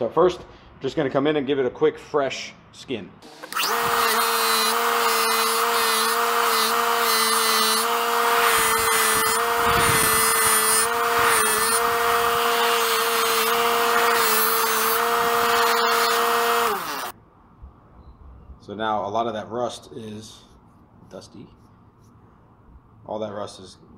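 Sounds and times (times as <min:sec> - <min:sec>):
bench buffer motor humming: 0:03.2 - 0:17.1
blade rasping on abrasive wheel: 0:03.3 - 0:17.1.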